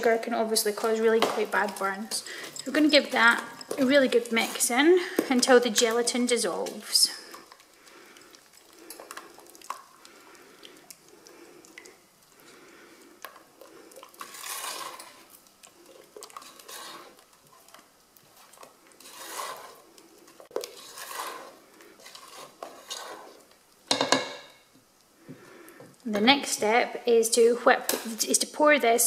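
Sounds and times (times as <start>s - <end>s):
spatula scraping a saucepan: 0.0s - 10.0s, 13.2s - 24.6s
spatula knocking against pan: 23.9s - 24.5s.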